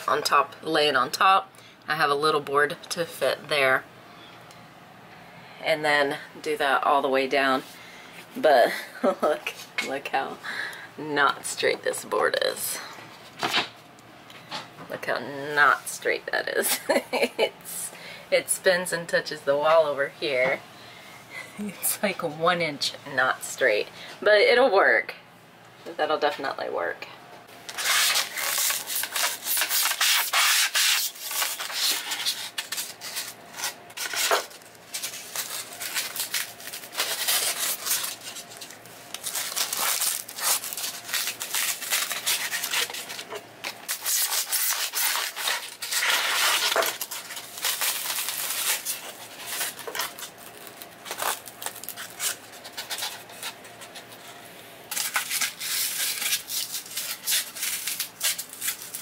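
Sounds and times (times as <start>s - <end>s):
styrofoam squeaking and crunching: 27.7s - 53.6s, 54.9s - 59.0s.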